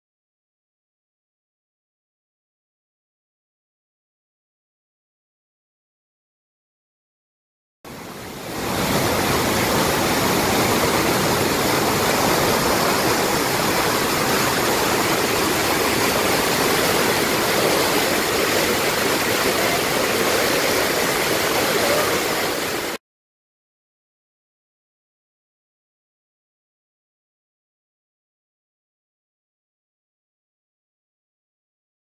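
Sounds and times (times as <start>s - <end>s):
waterfall rushing: 7.9s - 23.0s.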